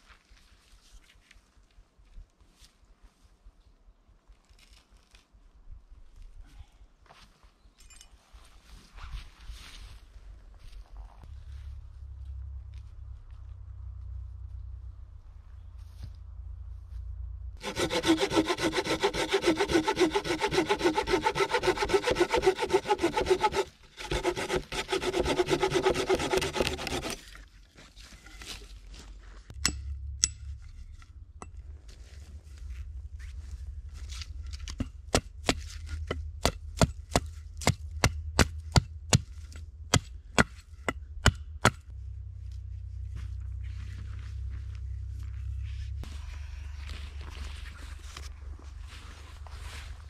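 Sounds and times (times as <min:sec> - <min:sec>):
hand saw cutting wood: 0:17.6 - 0:27.4.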